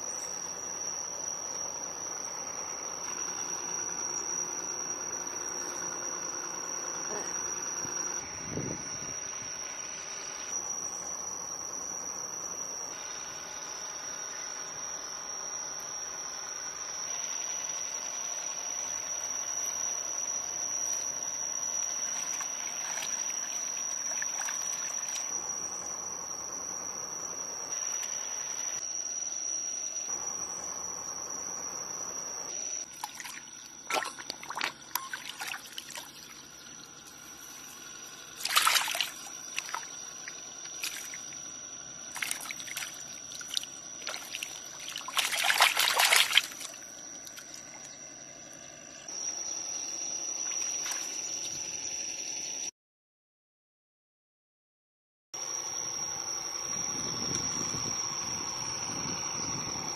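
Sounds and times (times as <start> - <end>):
fish splashing in water: 22.0 - 25.3, 32.9 - 36.4, 38.4 - 41.4, 42.1 - 48.0
water trickling and sloshing: 22.1 - 25.3, 32.9 - 36.8, 38.4 - 41.3, 42.2 - 48.0.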